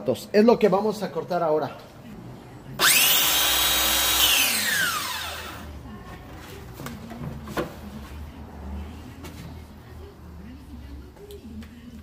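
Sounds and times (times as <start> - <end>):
circular saw running: 2.8 - 5.6.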